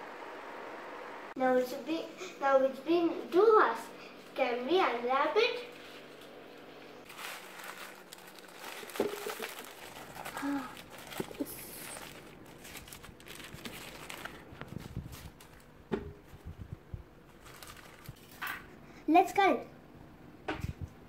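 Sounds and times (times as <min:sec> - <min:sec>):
paper crinkling and rustling: 0:07.0 - 0:16.6, 0:17.3 - 0:18.4.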